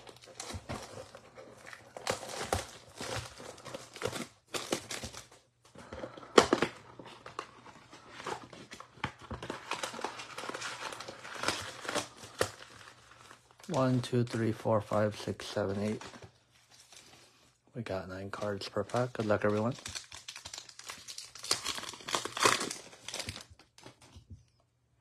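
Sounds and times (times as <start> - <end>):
cardboard box tearing: 0.0 - 5.3, 19.8 - 23.5
card packs crackling and rustling: 0.0 - 24.3.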